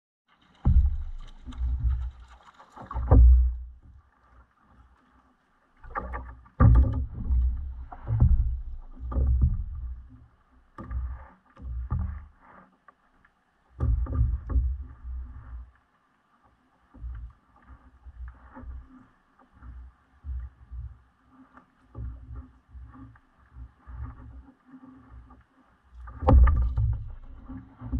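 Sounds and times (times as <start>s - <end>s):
water slapping against kayak hull: 0.3s - 5.1s, 5.8s - 12.7s, 13.8s - 15.6s, 26.0s - 27.9s.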